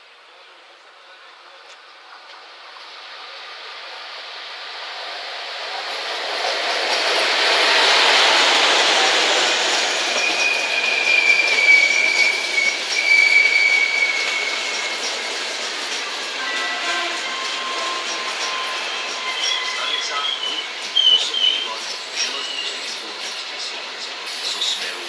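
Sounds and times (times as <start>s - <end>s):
electric locomotive passing: 0.1s - 25.0s
train wheels squealing: 6.4s - 25.0s.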